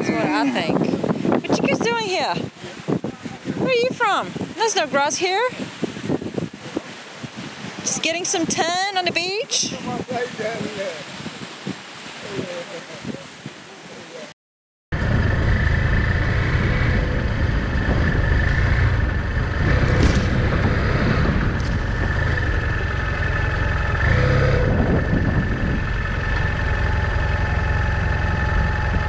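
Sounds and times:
motorcycle engine running: 14.9 - 29.0.

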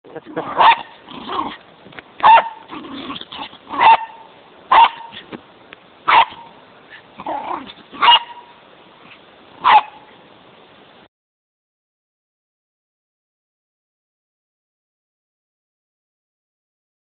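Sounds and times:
dog barking: 0.5 - 1.0, 2.2 - 2.6, 3.7 - 5.2, 6.1 - 6.5, 8.0 - 8.6, 9.6 - 10.1
dog yipping: 0.5 - 1.6, 2.2 - 5.3, 6.1 - 10.1.

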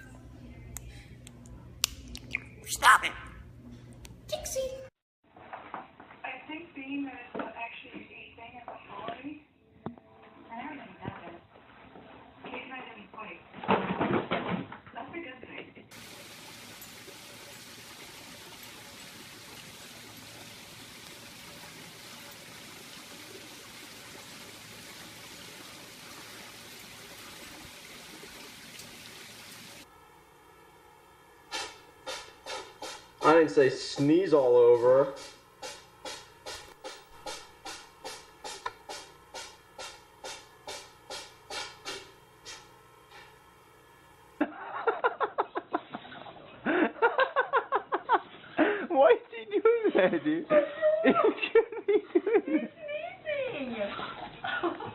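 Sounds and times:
quiet hum with steady tones: 0.0 - 4.8.

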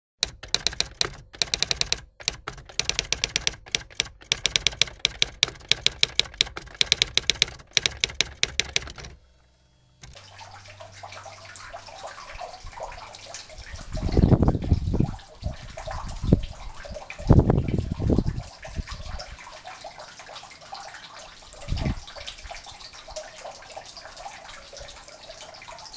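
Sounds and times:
typewriter keys clacking: 0.2 - 9.2
fountain water trickling: 10.0 - 25.9.

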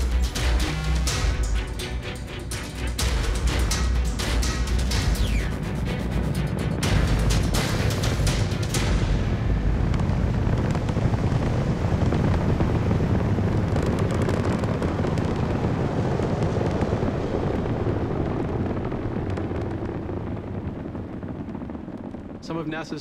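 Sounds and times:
rocket engines rumbling with crackle: 0.0 - 23.0.

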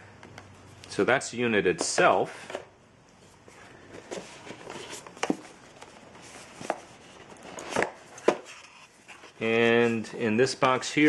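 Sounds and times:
cardboard rustling: 3.5 - 10.8.

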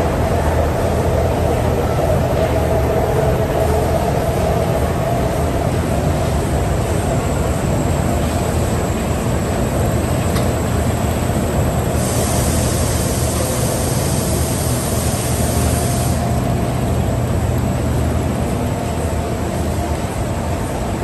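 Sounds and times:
machine hum and whir: 0.0 - 21.0
bright hiss: 12.0 - 16.3.

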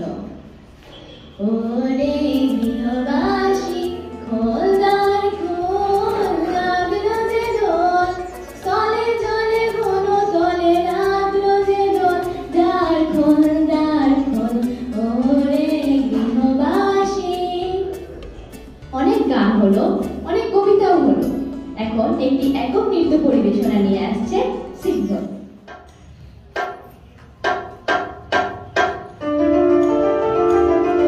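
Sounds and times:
woman singing into a microphone: 1.4 - 18.0.

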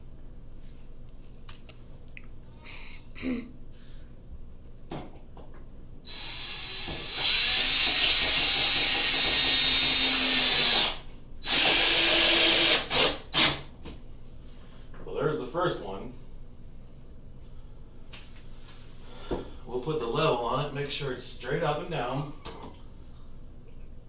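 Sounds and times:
cordless drill driving screw: 6.1 - 13.6.

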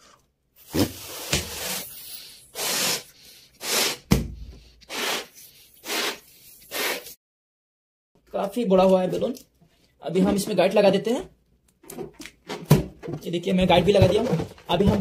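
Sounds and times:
balloon being inflated in puffs: 0.6 - 7.2.

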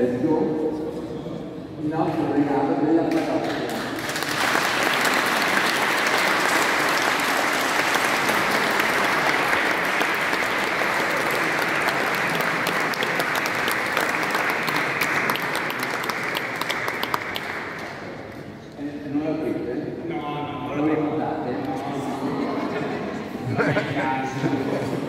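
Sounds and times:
congregation applauding: 3.1 - 18.3.

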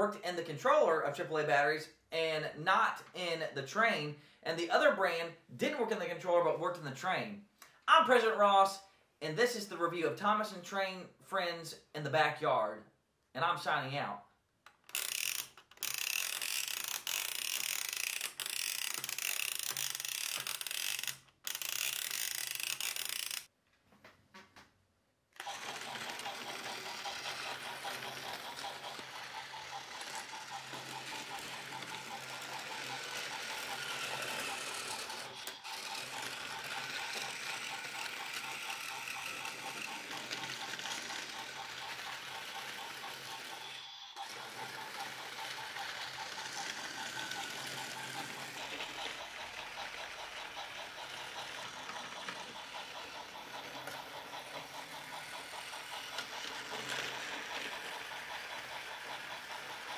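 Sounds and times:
toy train motor whirring: 14.7 - 23.5, 25.4 - 59.9.

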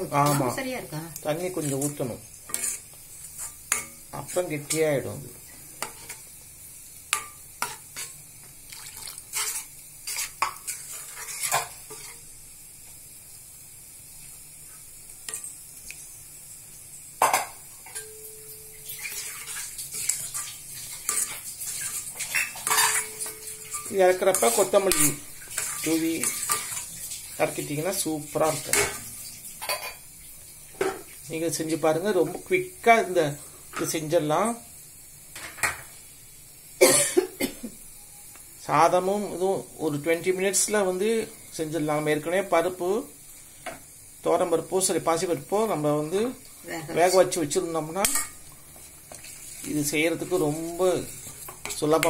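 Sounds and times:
ladle scraping steel pan: 1.6 - 4.9, 9.3 - 12.2, 18.9 - 26.9.

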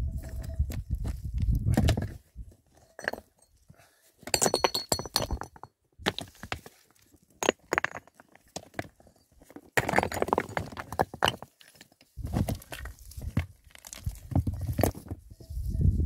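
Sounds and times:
hard objects knocking and clinking: 4.3 - 6.3, 7.4 - 11.6.

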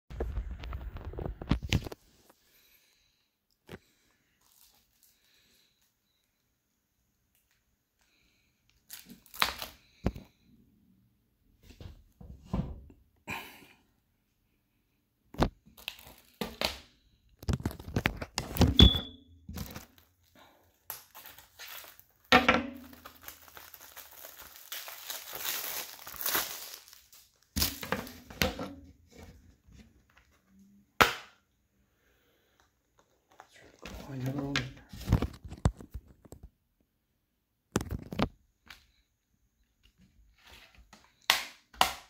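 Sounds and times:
plastic wrap crinkling and tearing: 4.4 - 5.5, 8.7 - 10.3, 15.4 - 18.7, 19.5 - 28.3.

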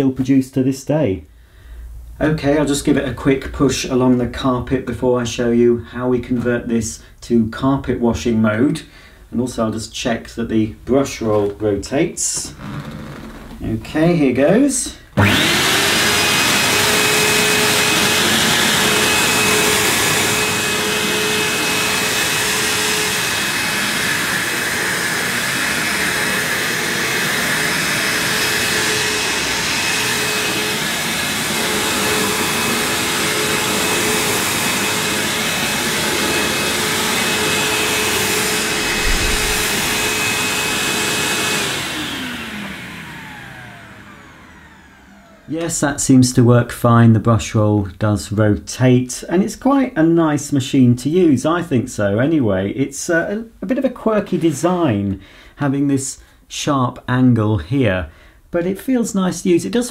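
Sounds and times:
vacuum cleaner motor whine: 12.4 - 13.6, 15.2 - 45.7
vacuum motor winding down: 12.4 - 13.6, 15.2 - 45.6.

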